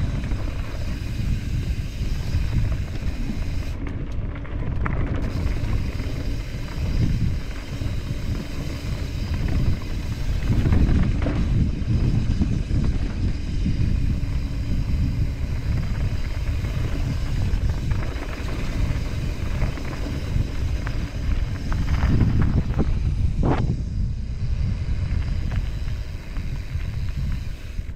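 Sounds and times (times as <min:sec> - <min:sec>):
tyres running over gravel: 0:00.0 - 0:23.8, 0:24.6 - 0:27.9
bike rattling over bumps: 0:00.0 - 0:27.9
wind buffeting microphone: 0:00.0 - 0:27.9.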